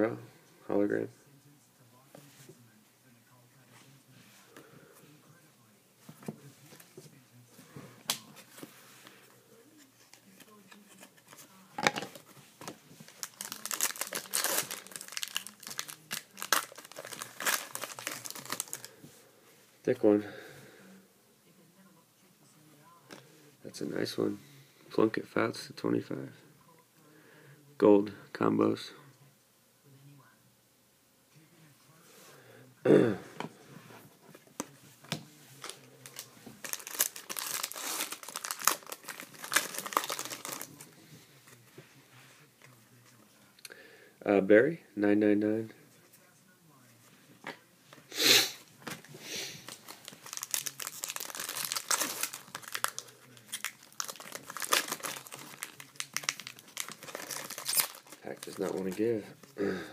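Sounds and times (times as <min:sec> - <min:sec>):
wrapper tearing and crinkling: 0:13.1 - 0:18.9, 0:35.6 - 0:40.8, 0:49.6 - 0:59.1.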